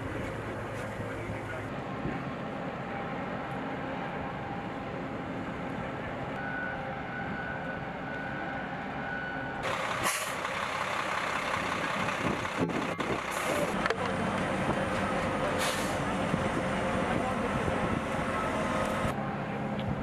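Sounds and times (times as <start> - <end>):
heavy trucks running: 0.0 - 20.0
short hisses: 15.6 - 16.0.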